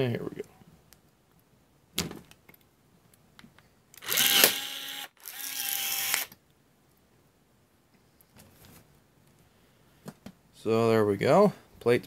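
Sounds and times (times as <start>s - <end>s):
rivet gun motor whining: 4.0s - 6.3s.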